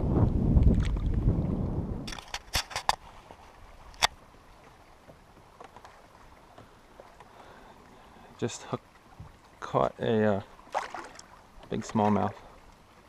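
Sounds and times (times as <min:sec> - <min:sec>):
wind buffeting microphone: 0:00.0 - 0:04.6
fishing gear clicking and knocking: 0:02.1 - 0:03.1.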